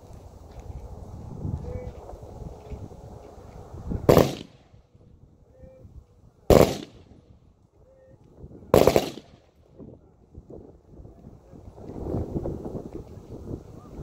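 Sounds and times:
gunshots: 0:04.1 - 0:04.6, 0:06.5 - 0:07.1, 0:08.7 - 0:09.4.

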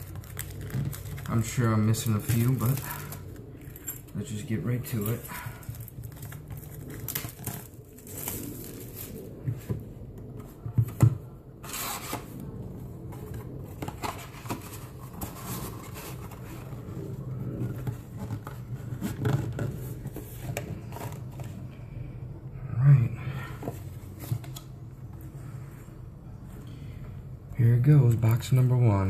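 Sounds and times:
plastic wrap crinkling: 0:00.0 - 0:09.4
cardboard box being opened: 0:13.1 - 0:21.6.

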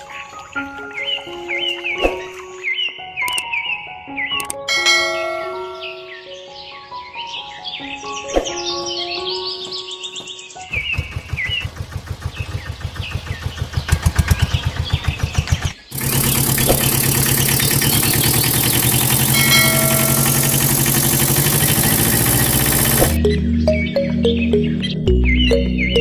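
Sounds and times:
auto-rickshaw engine putt-putt: 0:10.8 - 0:23.2
pickup truck engine running: 0:10.8 - 0:23.2.

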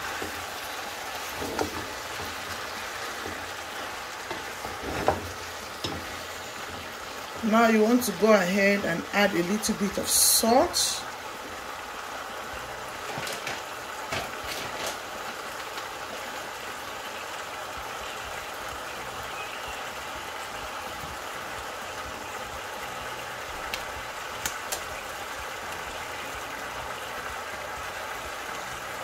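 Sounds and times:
vegetables sizzling in a frying pan: 0:00.0 - 0:29.0
wooden spatula scraping a pan: 0:01.2 - 0:06.9.

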